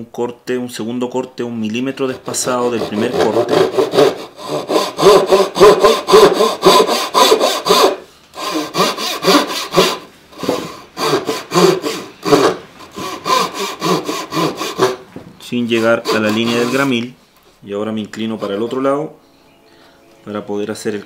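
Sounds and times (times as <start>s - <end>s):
backsaw cutting hardwood: 2.2s - 15.0s, 15.6s - 17.0s.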